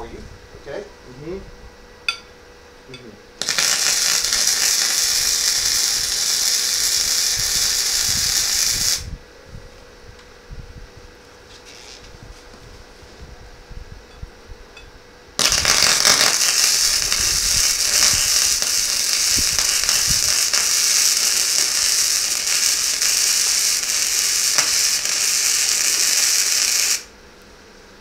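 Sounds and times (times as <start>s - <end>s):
welder arc hissing: 3.4s - 9.2s, 11.6s - 12.1s, 15.4s - 27.1s.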